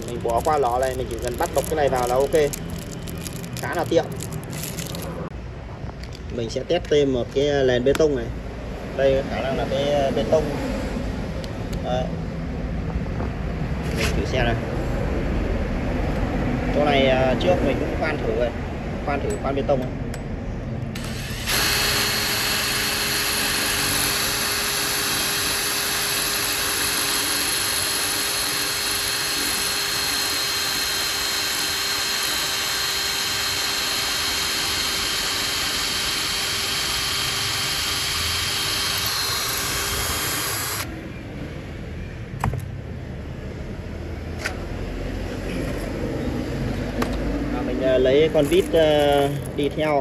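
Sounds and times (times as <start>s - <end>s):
drill boring into concrete: 0.0s - 5.1s, 20.9s - 40.9s.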